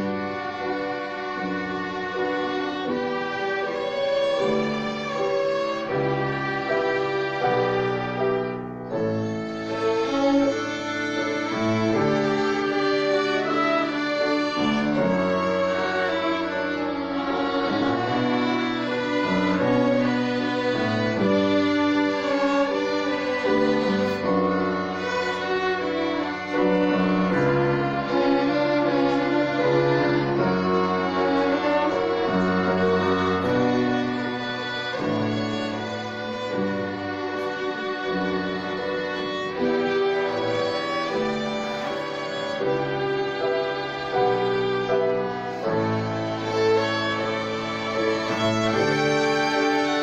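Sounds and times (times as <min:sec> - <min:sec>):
violin ensemble playing: 0:00.0 - 0:50.0.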